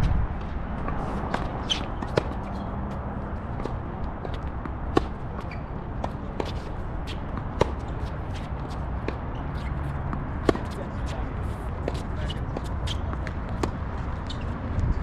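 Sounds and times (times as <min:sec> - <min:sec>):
wind rumble on microphone: 0:00.0 - 0:01.7, 0:14.6 - 0:15.0
balls bouncing on hard court: 0:00.8 - 0:03.0, 0:03.6 - 0:11.2, 0:11.8 - 0:14.9
tennis balls hit by rackets: 0:00.9 - 0:14.1.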